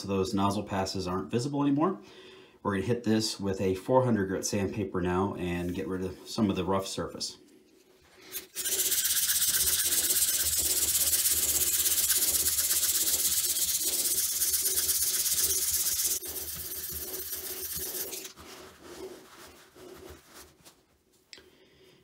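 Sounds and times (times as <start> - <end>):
sandpaper rasping on plastic: 8.4 - 20.8.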